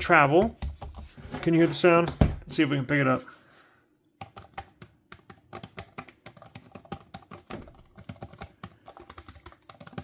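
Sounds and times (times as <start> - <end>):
laptop keyboard typing: 0.0 - 1.2, 4.0 - 10.0.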